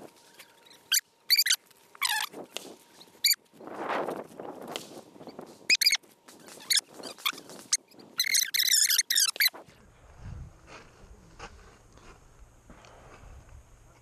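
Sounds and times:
sharp squeaks: 0:00.4 - 0:02.4, 0:03.2 - 0:03.4, 0:05.2 - 0:09.6
footsteps crunching on gravel: 0:10.0 - 0:13.3.

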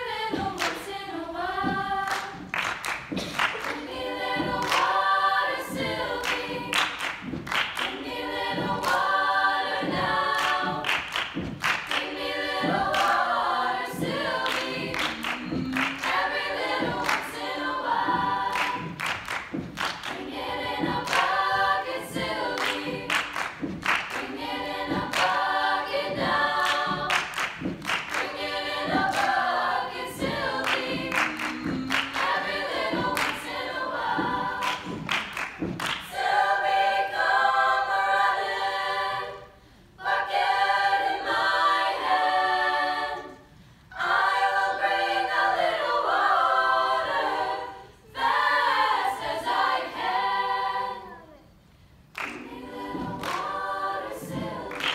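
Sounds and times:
rhythmic hand clapping: 0:00.0 - 0:39.4, 0:52.0 - 0:54.9
choir of young women singing: 0:00.0 - 0:54.9.

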